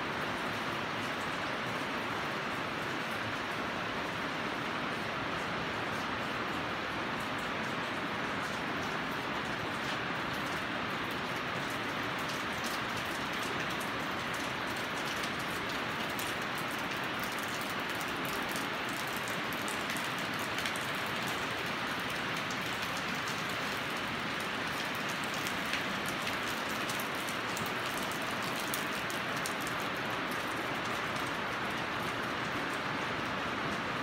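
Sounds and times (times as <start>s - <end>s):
rain on a metal roof: 0.0s - 34.0s.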